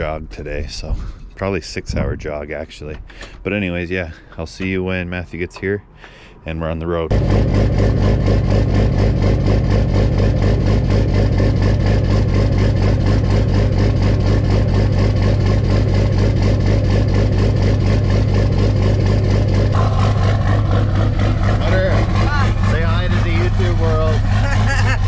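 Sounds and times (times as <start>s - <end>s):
diesel engine idling: 7.1s - 25.0s.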